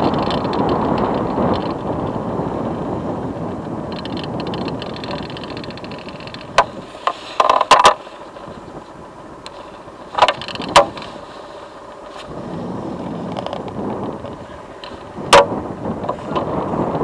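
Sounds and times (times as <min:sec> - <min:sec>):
sharp clicks and knocks: 0:00.0 - 0:02.1, 0:03.5 - 0:08.6, 0:09.4 - 0:11.2, 0:13.3 - 0:17.0.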